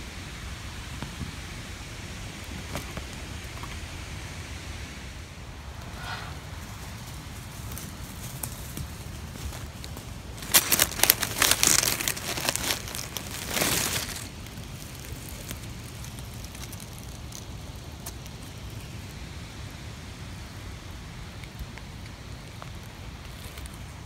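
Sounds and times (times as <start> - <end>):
low background noise: 0.0 - 24.0
dry leaves crackling and rustling: 5.9 - 24.0.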